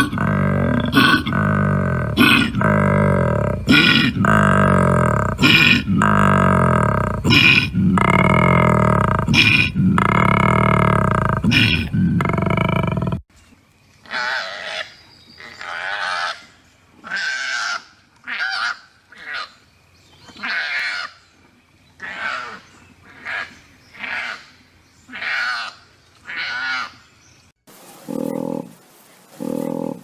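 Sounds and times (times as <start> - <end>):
koala low grunting call: 0.0 - 13.2, 28.0 - 28.8, 29.4 - 30.0.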